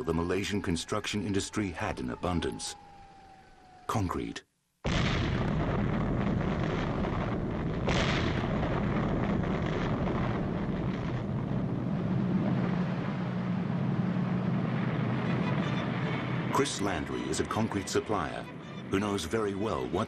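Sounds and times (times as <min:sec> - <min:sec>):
rock blasting rumble: 0:04.9 - 0:15.2.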